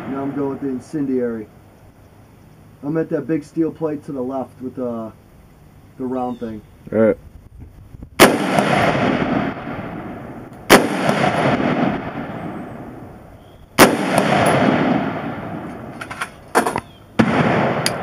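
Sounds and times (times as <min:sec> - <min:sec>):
rifle shots with echo: 0:08.2 - 0:13.1, 0:13.8 - 0:18.0.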